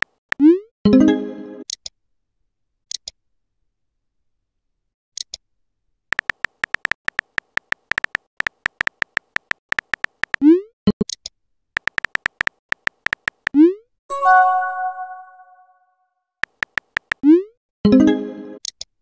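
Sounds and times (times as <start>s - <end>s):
keyboard tap clicks: 6.1s - 10.4s, 11.8s - 13.6s, 16.4s - 17.2s.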